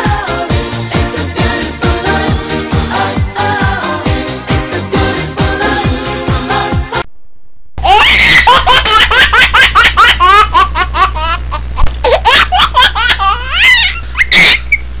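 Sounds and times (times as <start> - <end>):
steady low hum: 7.0 - 15.0
young child giggling: 7.8 - 14.8.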